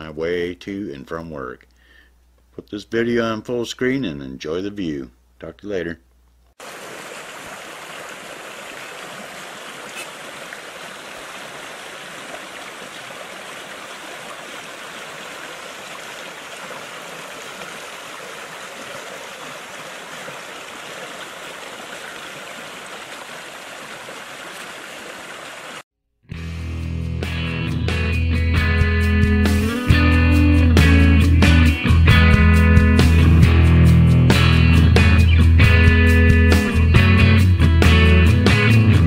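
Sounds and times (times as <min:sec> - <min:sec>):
creek water rushing: 0:06.6 - 0:25.8.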